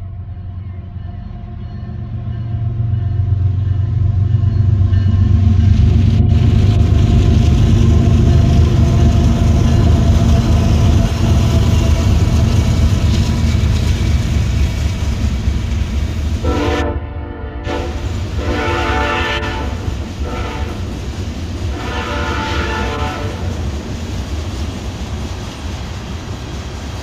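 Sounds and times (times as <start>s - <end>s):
train wheels rolling on rails: 0.0s - 16.9s, 17.6s - 27.0s
diesel locomotive engine rumble: 0.0s - 27.0s.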